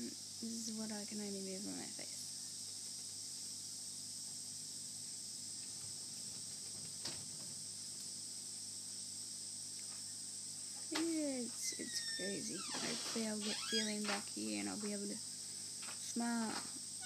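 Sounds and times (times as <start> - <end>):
faint low hum: 0.0 - 17.0
high-pitched hiss: 0.0 - 17.0.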